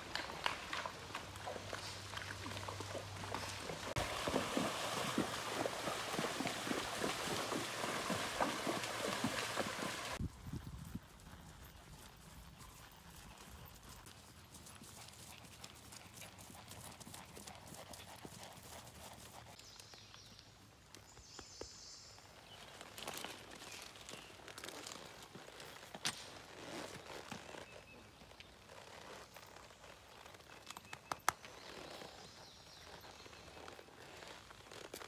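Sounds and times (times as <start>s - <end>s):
hooves splashing through water: 0.0s - 10.3s, 22.4s - 28.6s
horse footfalls on grass: 0.0s - 10.3s.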